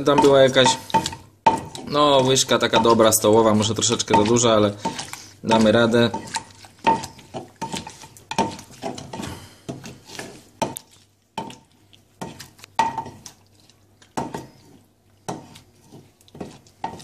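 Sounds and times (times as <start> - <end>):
wooden pestle knocking in clay mortar: 0.0 - 9.0.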